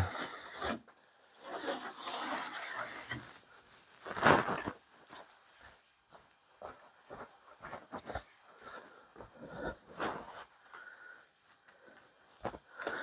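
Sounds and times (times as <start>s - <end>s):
scrape: 0.0s - 0.8s, 1.4s - 3.4s
rustling and handling noise: 2.7s - 13.0s.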